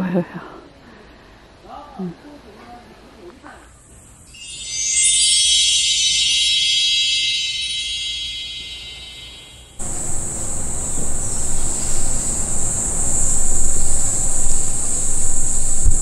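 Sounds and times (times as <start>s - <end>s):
steady high hiss: 3.0s - 16.0s
shimmering ringing tone: 4.2s - 16.0s
wind on microphone: 9.8s - 16.0s.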